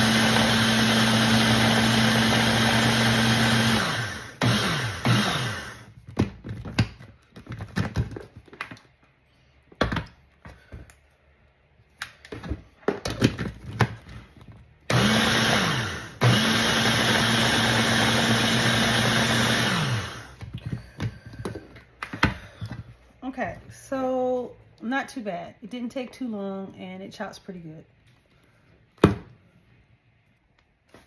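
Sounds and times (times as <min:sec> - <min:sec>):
hand blender chopping vegetables: 0:00.0 - 0:06.7, 0:14.9 - 0:22.6.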